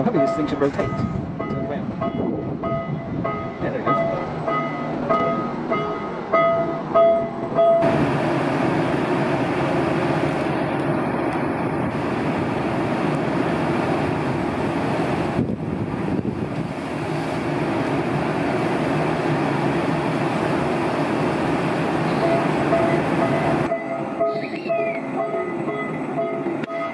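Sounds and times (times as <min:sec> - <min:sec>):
electric locomotive running on rails: 0:00.0 - 0:26.9
repeating pitched beep: 0:23.7 - 0:25.0.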